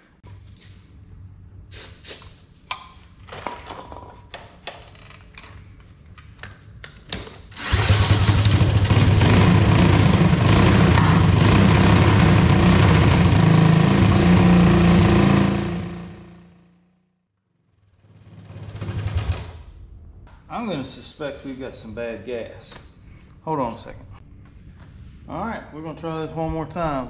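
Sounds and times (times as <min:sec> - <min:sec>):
engine starting and running: 0:07.4 - 0:16.8, 0:17.6 - 0:20.4.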